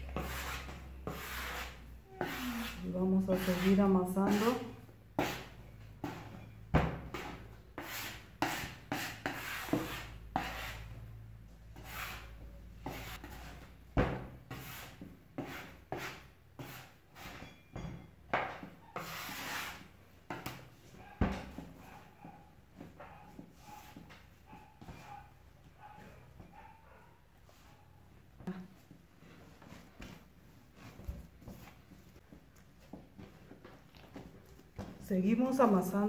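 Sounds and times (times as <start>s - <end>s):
hands kneading dough: 27.5s - 36.0s.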